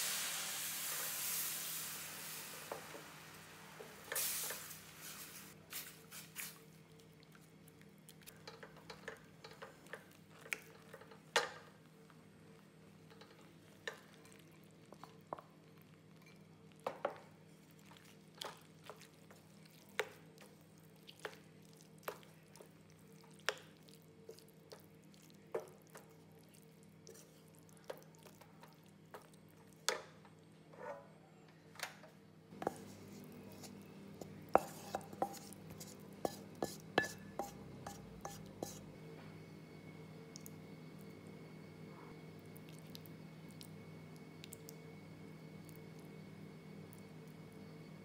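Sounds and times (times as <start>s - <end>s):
steady low hum: 32.2s - 48.0s
spatula knocking and scraping pan: 32.6s - 38.8s.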